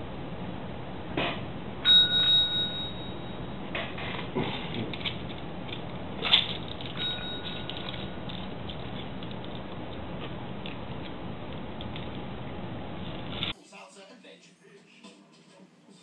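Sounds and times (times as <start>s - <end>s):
desk bell ding: 1.8s - 3.6s, 7.0s - 8.2s.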